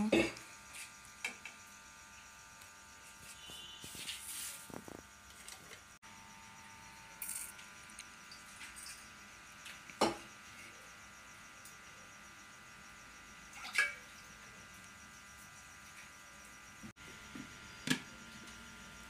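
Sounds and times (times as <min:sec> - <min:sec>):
fish washed in steel bowl: 0:12.8 - 0:16.6.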